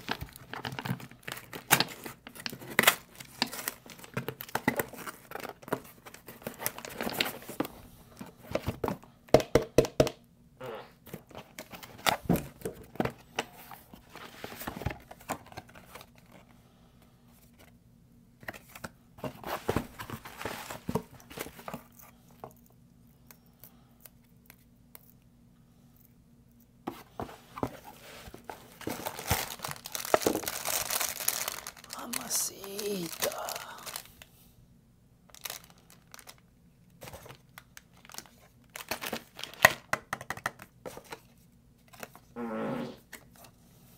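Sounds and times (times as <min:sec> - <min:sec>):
cardboard rustling and tearing: 0:00.0 - 0:07.7, 0:19.2 - 0:22.0, 0:27.2 - 0:34.1
plastic wrapper crinkling: 0:00.0 - 0:07.7, 0:28.2 - 0:34.3, 0:35.3 - 0:39.9.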